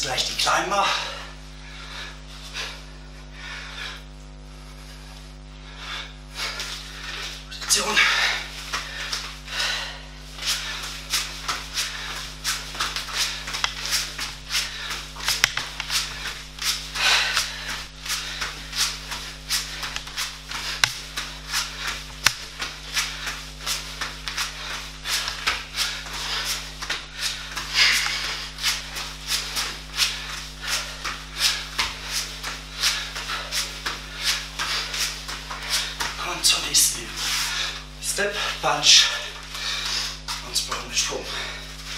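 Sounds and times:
feet scuffing on foam mat: 10.3 - 36.2.

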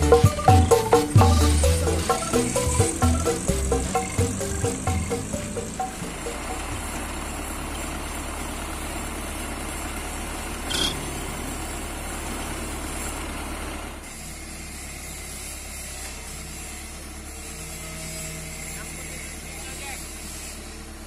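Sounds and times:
heavy diesel engine idling: 0.0 - 21.0
sharp high-pitched metallic sound: 10.7 - 11.7.

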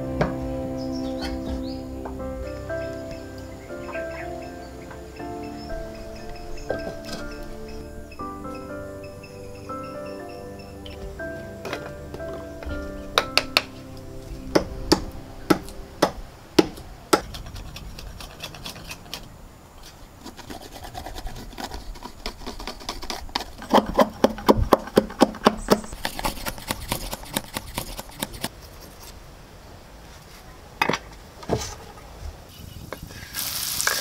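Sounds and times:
short hiss: 33.1 - 34.0.

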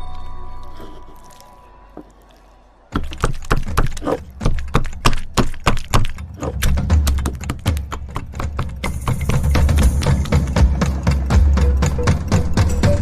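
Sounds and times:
rolling pin pounding on stone: 3.0 - 10.6
music tone: 8.9 - 13.0.

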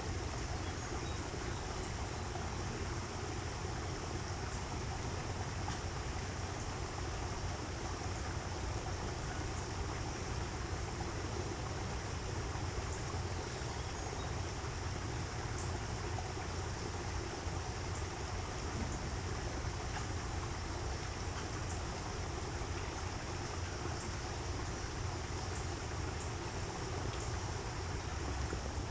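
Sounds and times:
rushing stream water: 0.0 - 28.9.

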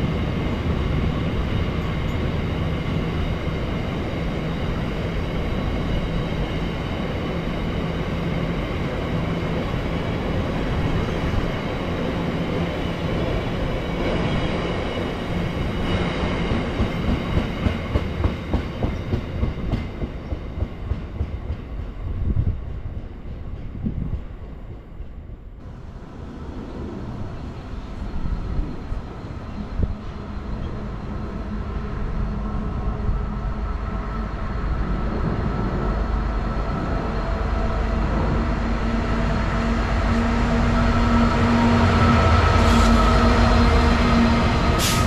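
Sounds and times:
diesel locomotive engine drone: 0.0 - 45.0.

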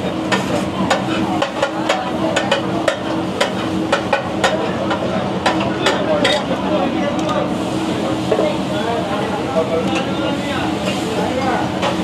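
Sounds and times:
metal spatula clacking on griddle: 0.3 - 6.5.

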